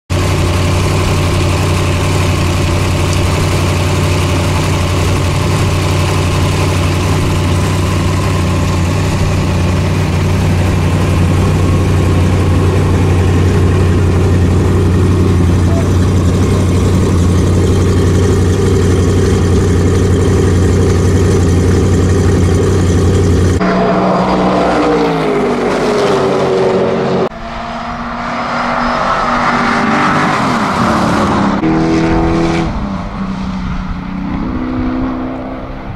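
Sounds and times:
car engine idling: 0.1 - 25.8
car engine revving up: 0.1 - 35.9
race car passing: 23.6 - 35.9.

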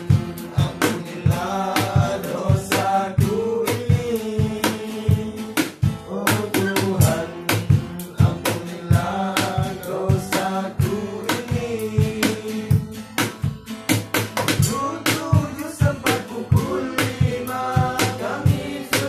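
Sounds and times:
men singing together: 0.0 - 13.5, 14.5 - 19.0
hand drumming on plastic bucket: 11.2 - 19.0.

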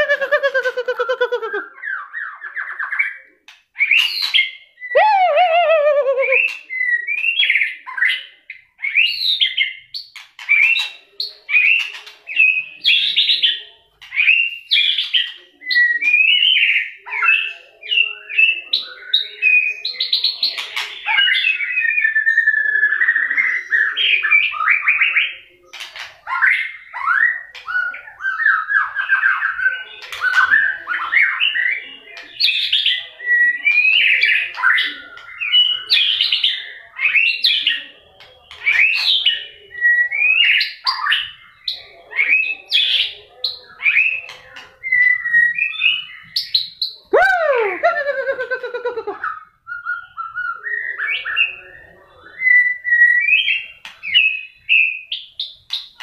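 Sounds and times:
bird singing whistled phrases: 3.8 - 7.7.

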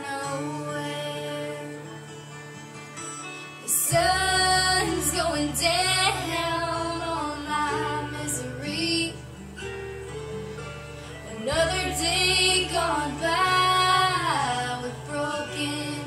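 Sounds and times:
woman singing: 0.0 - 2.2, 3.6 - 9.3, 11.3 - 16.0
instrumental backing track with bass: 2.0 - 16.0.

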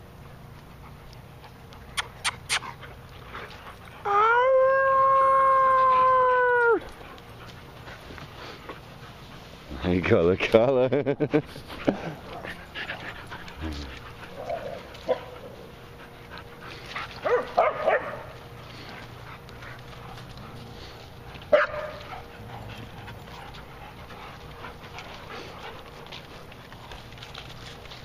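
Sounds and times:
dogs barking: 14.3 - 15.7, 17.2 - 18.4, 21.5 - 24.0.

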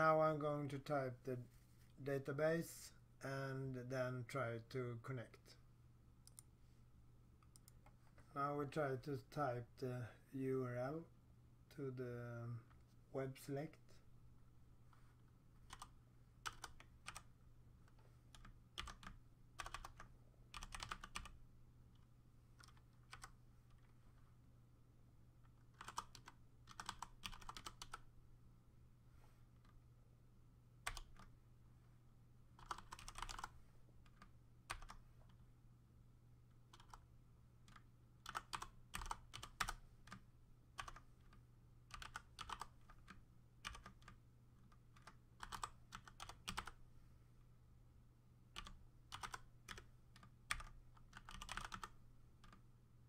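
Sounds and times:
computer keyboard typing: 15.6 - 21.4, 22.6 - 23.4, 25.7 - 28.0, 30.8 - 31.3, 32.6 - 33.5, 34.1 - 35.0, 36.7 - 37.0, 37.7 - 40.2, 40.8 - 41.0, 41.9 - 46.8, 48.6 - 52.6.

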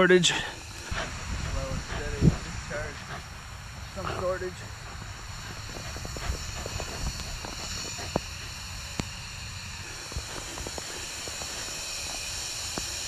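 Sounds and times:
gas hissing from piping: 0.0 - 13.0.

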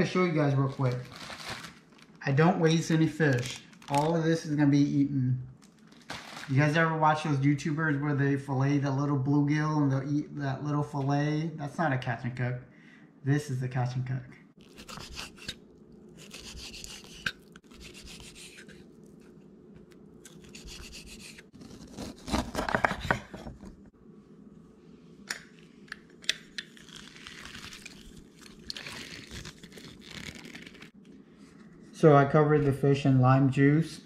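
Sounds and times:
knife cutting on wooden board: 14.6 - 15.6, 16.2 - 18.8, 20.3 - 23.5
lime squeezer pressing juice: 14.6 - 19.3.

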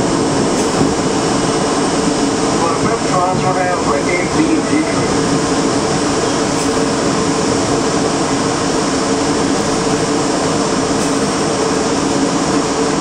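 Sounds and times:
train equipment whirring hum: 0.0 - 13.0.

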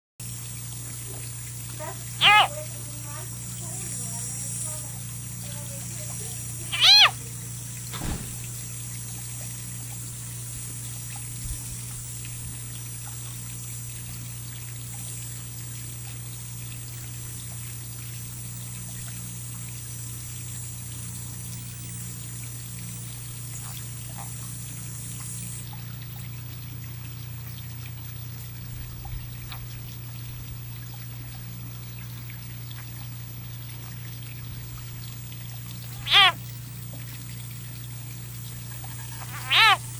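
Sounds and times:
low hum and hiss: 0.2 - 39.9
frog distress scream: 2.0 - 2.6, 6.6 - 7.2, 35.9 - 36.4, 39.0 - 39.9.

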